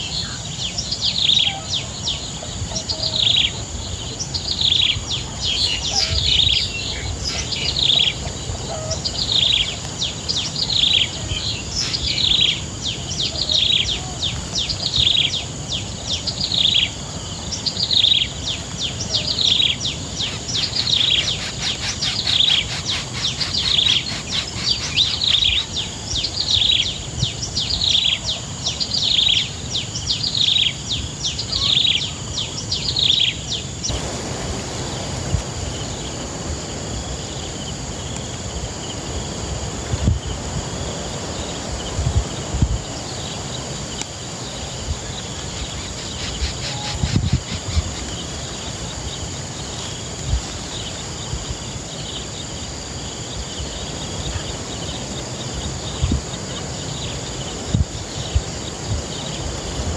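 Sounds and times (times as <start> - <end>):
bird chirping: 0.0 - 34.1
insect-like hiss: 0.0 - 59.9.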